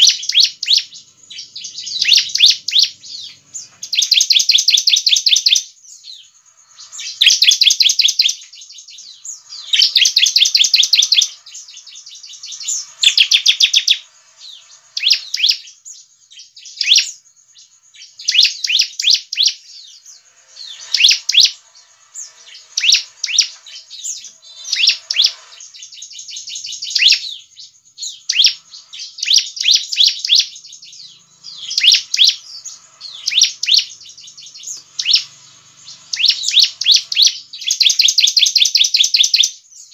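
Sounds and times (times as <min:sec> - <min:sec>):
bird singing trills and notes: 0:00.0 - 0:39.9.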